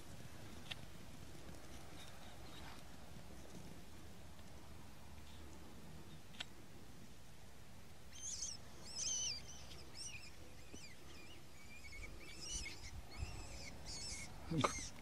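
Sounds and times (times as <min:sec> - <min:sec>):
rabbit squealing in distress: 0:12.4 - 0:15.0.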